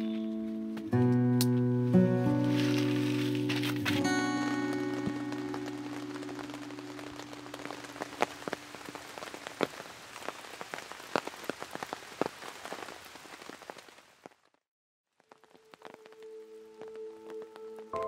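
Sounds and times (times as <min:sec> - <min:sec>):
rain on tent fabric: 0:02.0 - 0:18.0.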